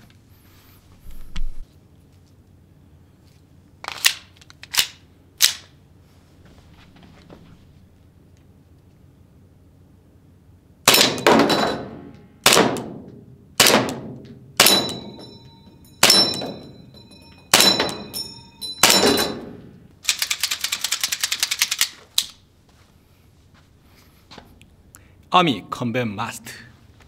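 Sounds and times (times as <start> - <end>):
metallic ring of steel target: 10.9 - 12.2, 14.0 - 19.9
airsoft pistol shots: 10.9 - 15.1, 18.8 - 19.6
rattle of rapid ticks: 20.1 - 21.9.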